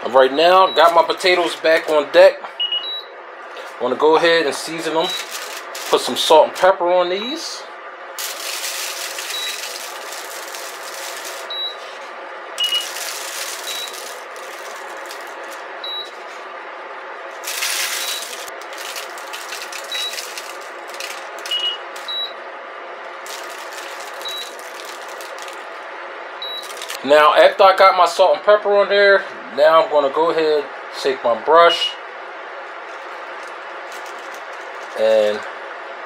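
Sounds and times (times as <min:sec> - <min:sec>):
salt and pepper pattering on foil: 0:08.2 - 0:11.5, 0:12.6 - 0:15.6, 0:17.5 - 0:21.5, 0:23.2 - 0:25.6.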